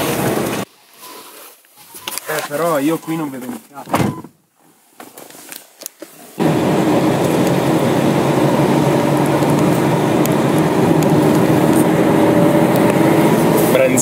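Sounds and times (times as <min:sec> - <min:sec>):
car road and engine noise: 0:00.0 - 0:01.2, 0:05.9 - 0:14.0.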